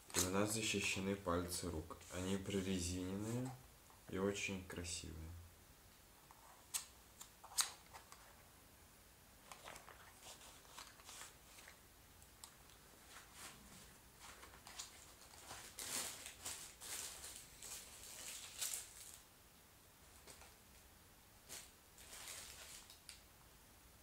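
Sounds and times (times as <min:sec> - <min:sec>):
plastic packaging crinkling: 0:14.2 - 0:19.3, 0:21.5 - 0:23.2.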